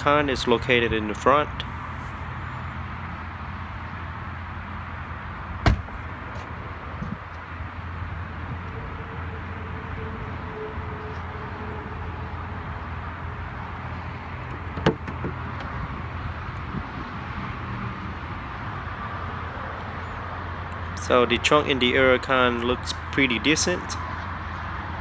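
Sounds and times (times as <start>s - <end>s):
car lid unlatching clunk: 5.6s - 6.0s, 14.4s - 15.8s.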